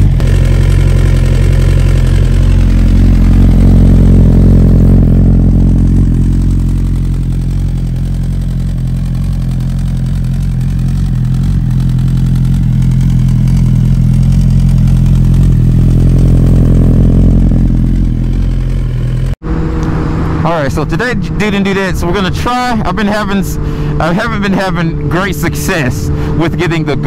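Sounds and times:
motorcycle engine idling: 0.0s - 19.4s.

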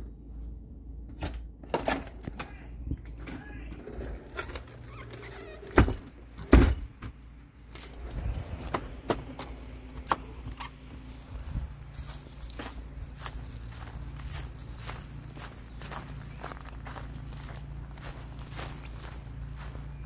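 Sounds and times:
thin high squeak: 3.4s - 6.5s.

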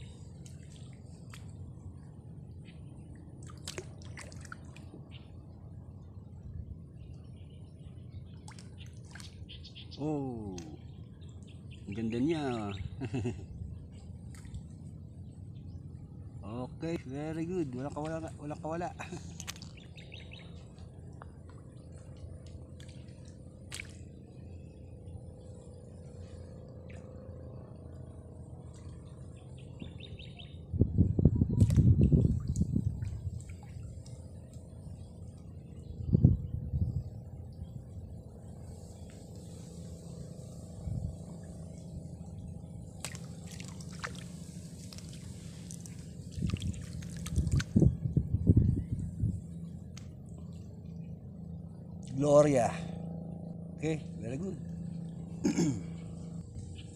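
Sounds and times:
low steady rumble: 0.0s - 56.9s
fish splashing at water surface: 3.4s - 4.9s, 42.9s - 47.8s
bird chirping: 7.0s - 13.0s, 19.6s - 20.7s, 29.4s - 30.7s
water dripping: 43.0s - 47.8s.

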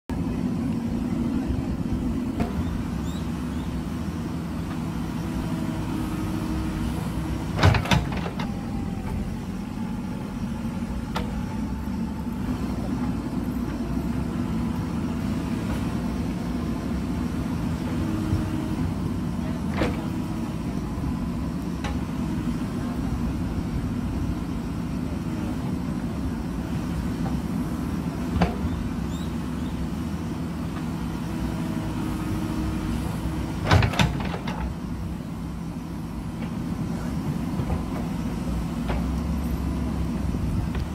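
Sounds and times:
diesel engine running under load: 0.1s - 40.9s.

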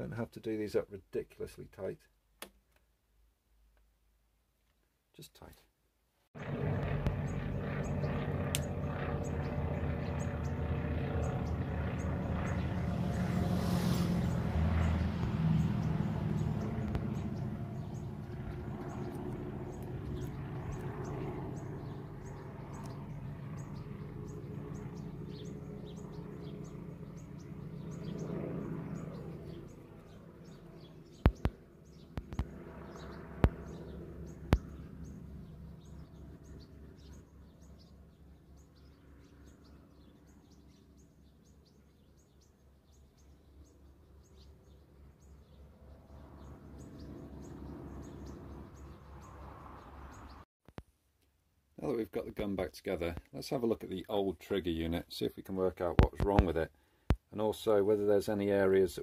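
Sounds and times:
low droning hum: 6.4s - 41.2s
small birds chirping: 7.0s - 50.8s
sharp loud clicks: 31.2s - 32.6s.

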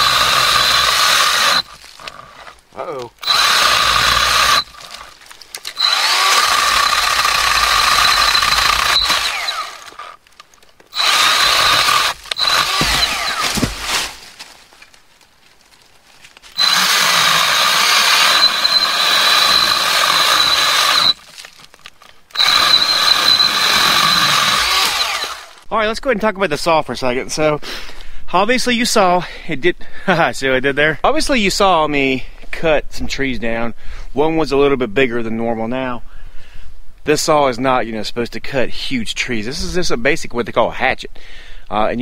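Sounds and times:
cordless saw whining: 0.0s - 2.6s, 3.2s - 10.2s, 10.9s - 13.8s, 16.5s - 21.3s, 22.3s - 25.6s.

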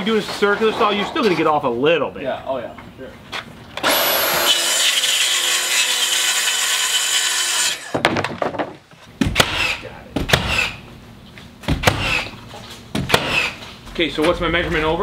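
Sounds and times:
sharp knocks: 7.9s - 10.8s, 11.6s - 12.3s, 12.9s - 13.6s.

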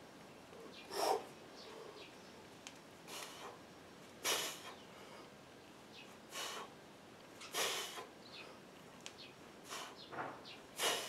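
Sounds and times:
man huffing breaths: 10.7s - 11.0s.

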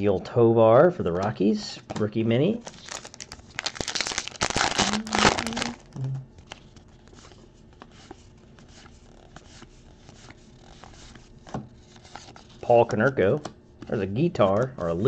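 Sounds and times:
card pack wrapper tearing: 2.6s - 5.9s.

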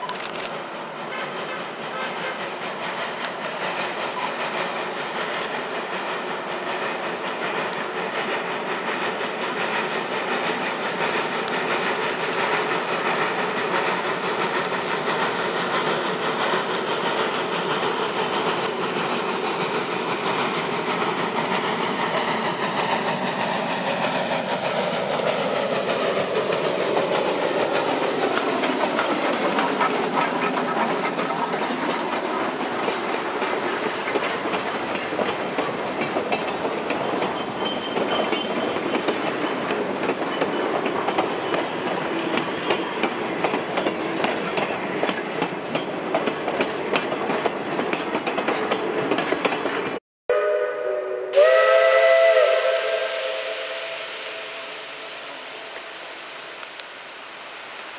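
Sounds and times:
train wheels clicking on rail joints: 0.0s - 50.0s, 55.1s - 57.9s
steam locomotive exhaust: 0.0s - 57.9s
steam whistle chord: 50.3s - 55.8s.

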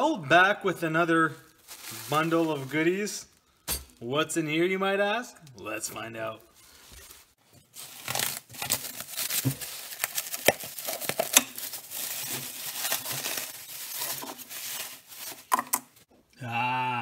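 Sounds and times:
plastic wrapping crinkling: 1.2s - 3.6s, 6.4s - 16.1s.

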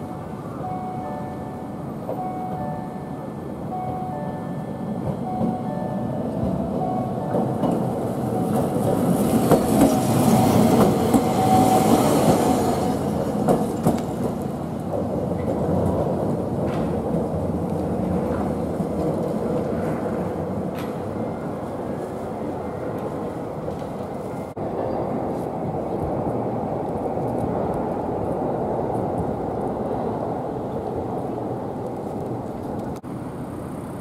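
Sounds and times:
level-crossing bell ringing: 0.0s - 8.9s
tram wheels rumbling on rails: 0.0s - 34.0s.

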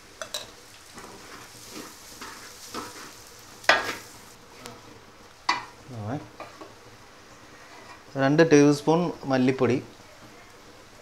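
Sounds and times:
faint sizzle: 0.0s - 11.0s
wooden spatula scraping metal pan: 1.0s - 4.1s.

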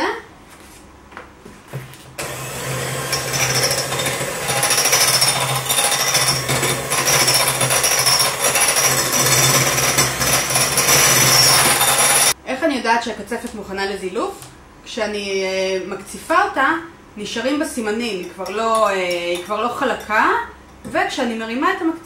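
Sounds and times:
electric hand mixer whirring: 2.2s - 12.4s.

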